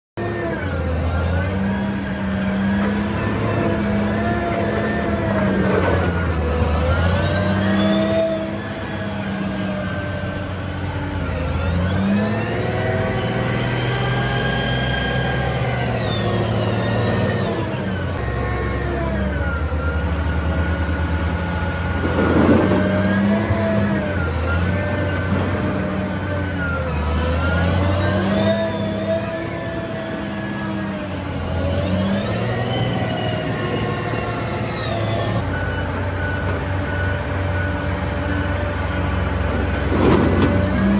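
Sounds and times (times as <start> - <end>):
engine whine: 0.2 - 40.9
loader diesel engine revving: 0.2 - 40.9.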